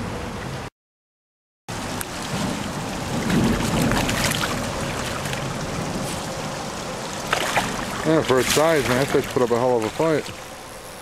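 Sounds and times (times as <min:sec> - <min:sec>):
creek water rushing: 0:01.7 - 0:11.0
fish splashing at surface: 0:02.1 - 0:06.4, 0:07.1 - 0:10.5.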